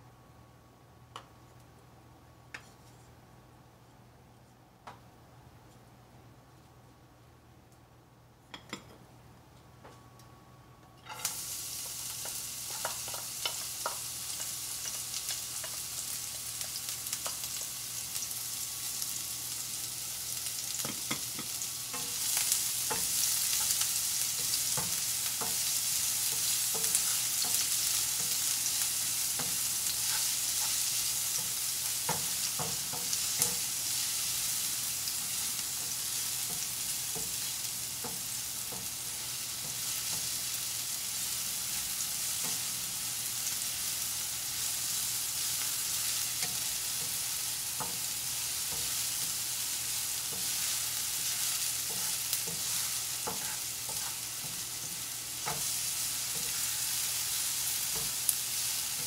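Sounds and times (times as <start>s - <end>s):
onion sizzling in oil: 11.1s - 59.0s
spatula scraping a pan: 20.8s - 33.6s, 50.2s - 59.0s.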